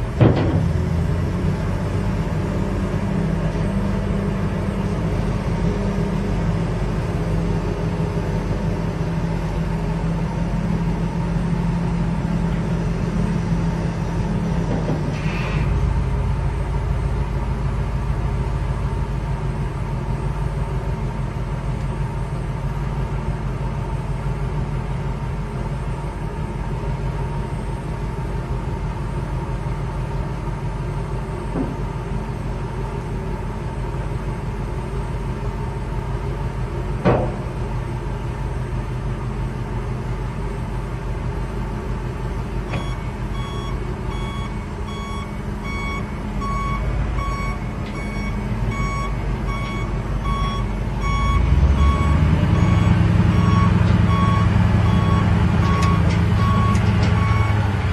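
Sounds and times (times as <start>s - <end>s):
truck engine running: 0.0s - 57.9s
reverse alarm beeping: 42.7s - 57.6s.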